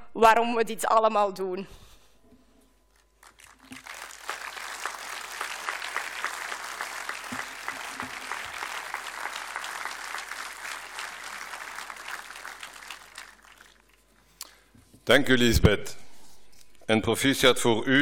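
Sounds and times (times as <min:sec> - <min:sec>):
audience applauding: 0:03.2 - 0:14.2.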